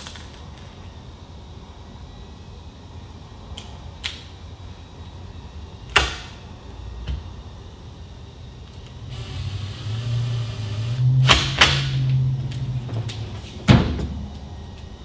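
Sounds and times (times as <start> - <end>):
cordless driver motor whirring: 9.1 - 11.1.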